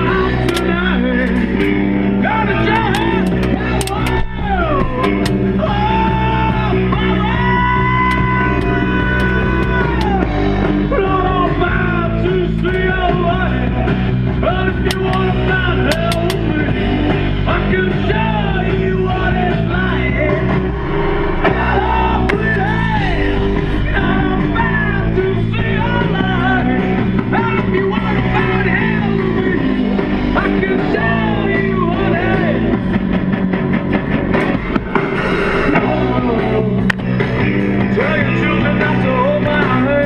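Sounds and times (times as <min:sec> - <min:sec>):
rock music on car radio: 0:00.0 - 0:40.0.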